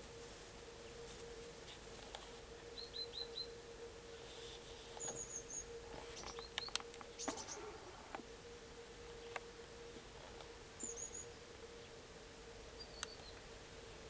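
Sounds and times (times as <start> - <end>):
faint hum: 0.0 - 14.0
songbird calls: 2.7 - 3.6, 4.2 - 8.2, 10.2 - 12.0, 12.7 - 13.5.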